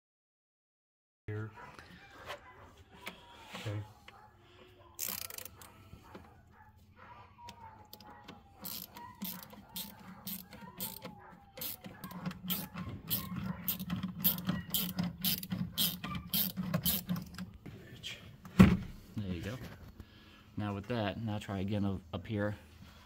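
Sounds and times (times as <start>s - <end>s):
hand ratchet clicking: 5.0s - 5.7s, 8.6s - 17.4s.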